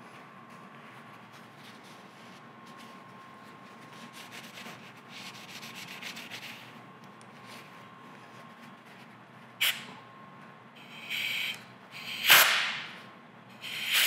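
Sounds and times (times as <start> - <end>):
compressed air blast: 11.0 - 12.9, 13.6 - 14.0.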